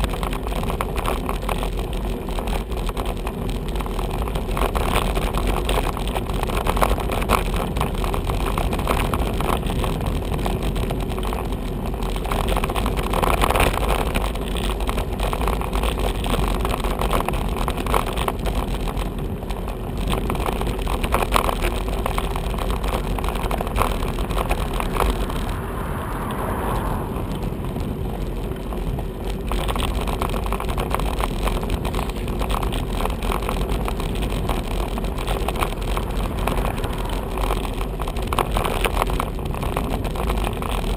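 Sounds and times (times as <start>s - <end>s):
bicycle rumbling over rough road: 0.0s - 40.9s
cars passing: 21.8s - 30.0s, 33.6s - 39.8s.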